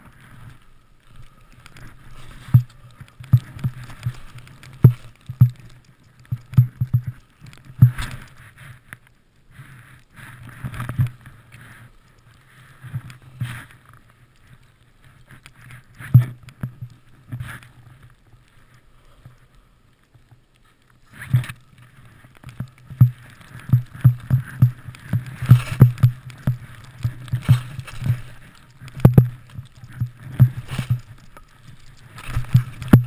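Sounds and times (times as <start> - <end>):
skis swishing through snow: 0.0 - 5.4, 20.7 - 33.0
dull thumps of skis: 1.6 - 8.4, 22.4 - 33.0.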